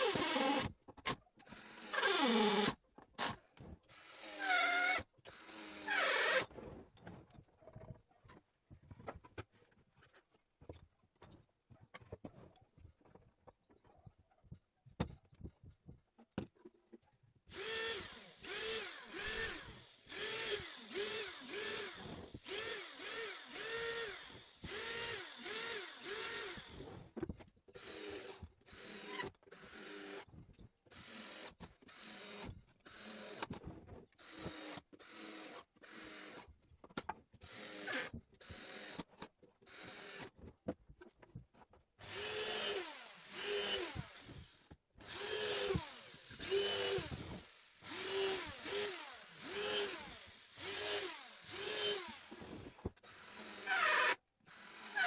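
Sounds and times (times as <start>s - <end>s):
cordless drill whirring: 0.0s - 6.8s, 17.5s - 27.2s, 27.8s - 30.3s, 30.9s - 33.6s, 34.2s - 36.5s, 37.4s - 40.4s, 42.0s - 55.0s.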